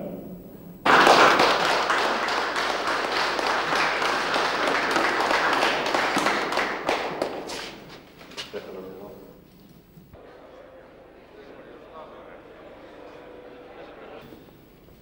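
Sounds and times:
audience applauding: 0.9s - 8.4s.

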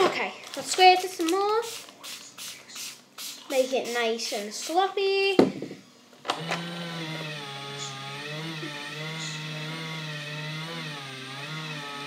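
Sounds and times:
small electric motor humming: 6.3s - 12.0s.

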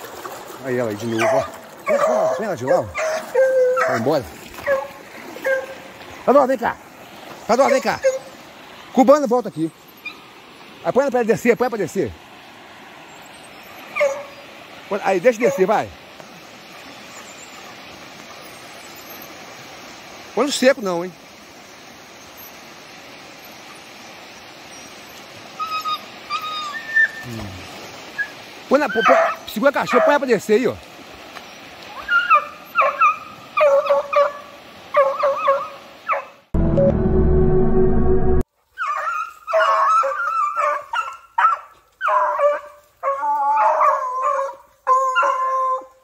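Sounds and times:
stream water rushing: 0.0s - 36.6s
hounds baying: 1.0s - 6.1s, 7.6s - 8.4s, 13.6s - 14.4s, 28.2s - 30.3s, 32.0s - 36.4s, 38.8s - 46.0s
dog whining: 3.0s - 4.0s, 25.6s - 27.3s.

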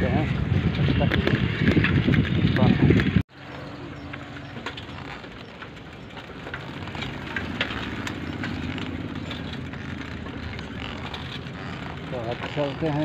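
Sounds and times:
motorbike road and wind noise: 0.0s - 13.0s
light clicks and rattles: 1.0s - 13.0s.

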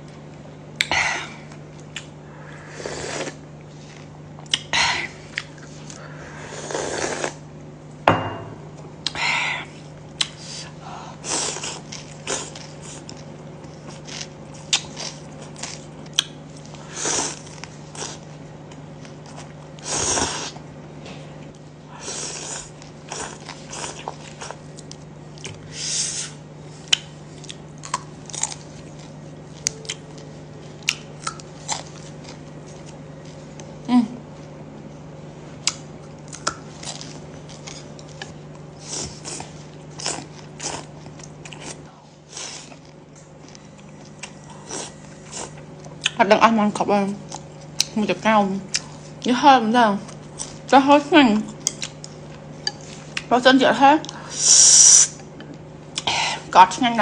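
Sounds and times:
steady low hum: 0.0s - 57.0s
slurping noodles: 6.5s - 7.4s
chewing: 11.5s - 19.8s, 26.8s - 33.7s, 35.6s - 46.2s, 51.5s - 53.3s.

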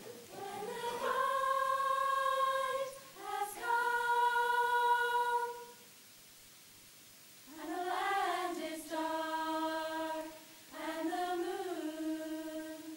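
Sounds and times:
female a cappella group singing: 0.0s - 5.9s, 7.5s - 12.9s.

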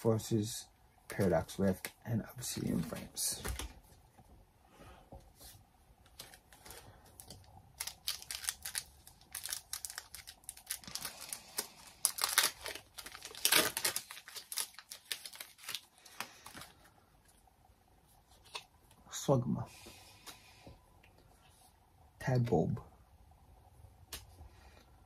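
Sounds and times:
foil wrapper crinkling and tearing: 6.2s - 16.8s.

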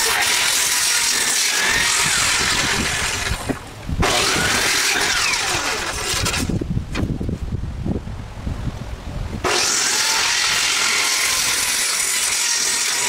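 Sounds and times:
circular saw cutting wood: 0.0s - 6.6s, 9.4s - 13.0s.

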